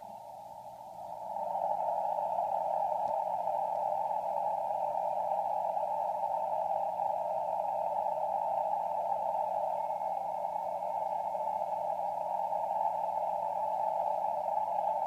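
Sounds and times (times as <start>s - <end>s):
shortwave radio tones and hiss: 0.0s - 15.0s.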